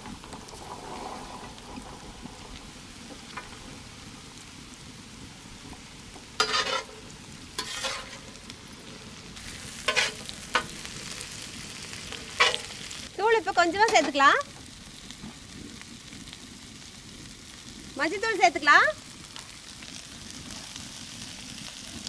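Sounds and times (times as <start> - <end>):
food sizzling in hot oil: 0.0 - 22.0
metal spatula scraping pan: 6.4 - 7.0, 7.6 - 8.4, 9.7 - 10.8, 12.1 - 12.9.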